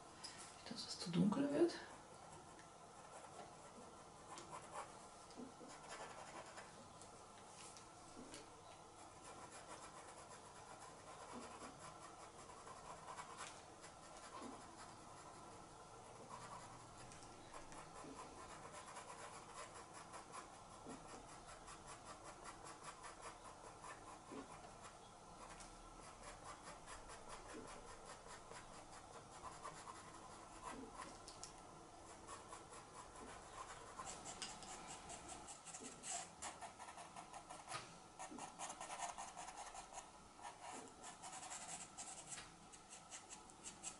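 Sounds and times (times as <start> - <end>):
pencil scratching on card: 5.6 - 6.7, 9.2 - 15.5.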